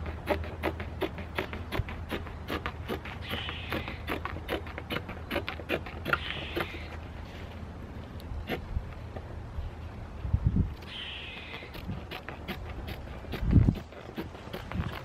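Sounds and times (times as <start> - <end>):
shears snipping through cloth: 0.0 - 7.0, 11.4 - 15.0.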